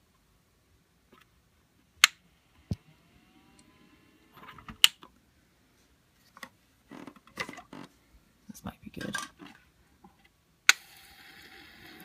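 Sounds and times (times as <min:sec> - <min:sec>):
faint rising whine: 0:02.3 - 0:05.8.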